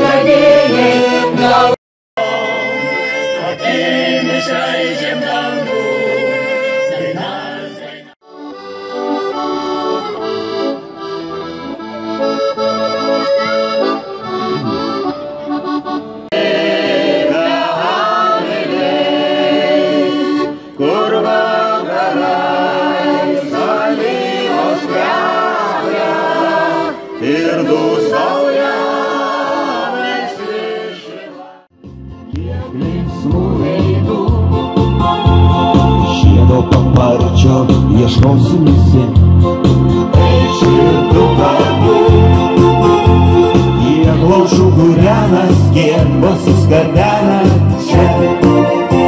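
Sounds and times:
women's choir singing: 0:00.0 - 0:02.6, 0:03.4 - 0:08.2, 0:16.3 - 0:31.7, 0:32.4 - 0:34.5, 0:40.2 - 0:42.7, 0:47.8 - 0:49.0
keyboard music: 0:00.0 - 0:30.8, 0:31.8 - 0:49.0
accordion folk dance music: 0:00.0 - 0:49.0.

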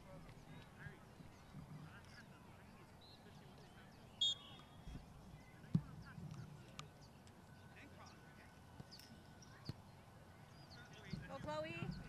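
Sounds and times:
faint distant voices: 0:00.0 - 0:12.0
referee's whistle blast: 0:04.2 - 0:04.6.

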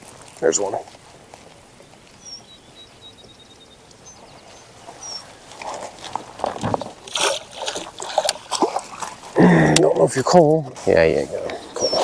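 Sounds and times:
water lapping: 0:00.0 - 0:12.0
bird chirps: 0:01.8 - 0:05.4, 0:11.5 - 0:12.0
fish thrashing and splashing: 0:04.8 - 0:10.2.

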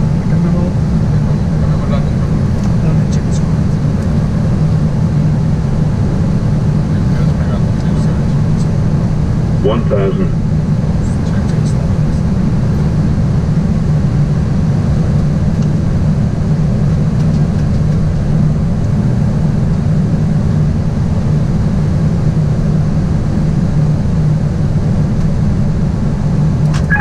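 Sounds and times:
airliner cockpit engine drone: 0:00.0 - 0:27.0.

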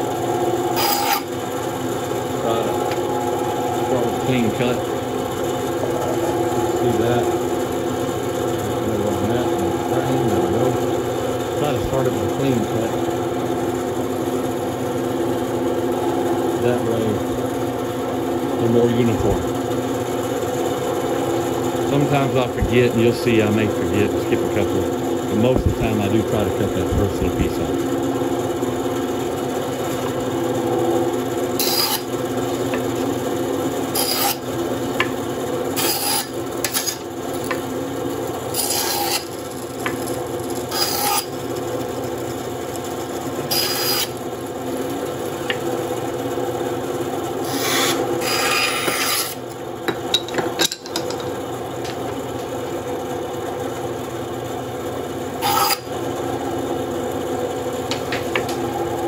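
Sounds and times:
bandsaw motor hum: 0:00.0 - 0:59.0
saw blade rasping through wood: 0:00.7 - 0:01.3, 0:31.6 - 0:32.1, 0:33.9 - 0:34.5, 0:35.7 - 0:37.0, 0:38.5 - 0:40.0, 0:40.7 - 0:41.4, 0:43.4 - 0:44.2, 0:47.4 - 0:49.4, 0:55.4 - 0:55.9.

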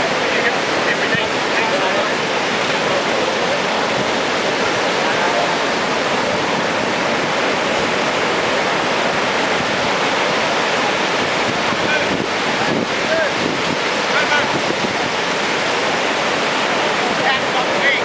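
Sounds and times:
storm surf breaking on beach: 0:00.0 - 0:18.0.

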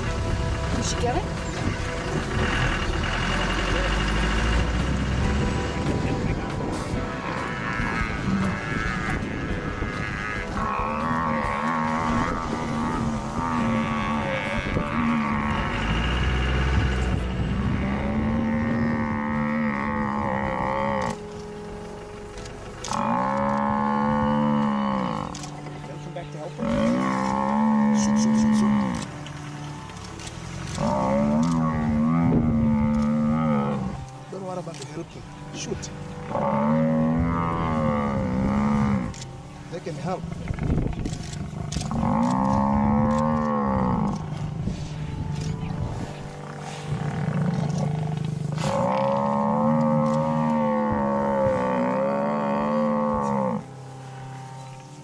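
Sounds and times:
buffalo bellowing: 0:00.0 - 0:55.0
rough growling: 0:39.8 - 0:53.6.

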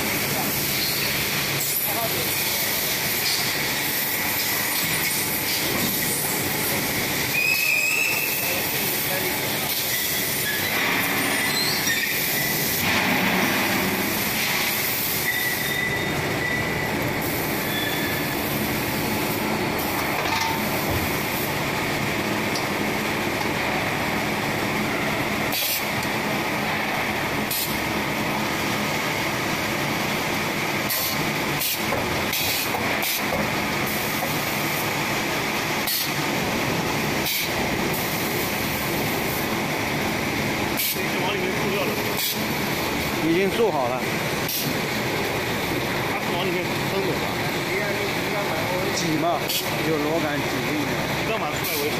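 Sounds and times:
high machine whine: 0:00.0 - 0:51.9
sharp clicks or hisses: 0:25.5 - 0:25.9, 0:37.2 - 0:37.6, 0:44.4 - 0:44.8.

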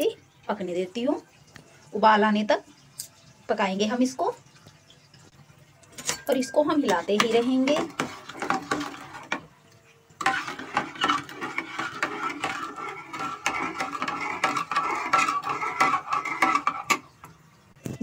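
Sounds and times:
metal ladle scraping saucepan: 0:05.9 - 0:09.5, 0:10.1 - 0:17.6.

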